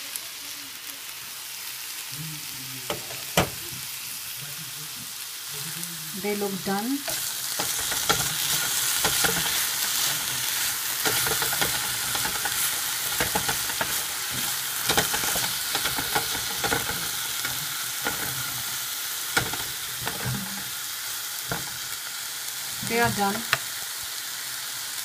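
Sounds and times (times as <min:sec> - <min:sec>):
vegetables sizzling in frying pan: 0:00.0 - 0:25.0
wooden spatula scraping pan: 0:07.1 - 0:18.7.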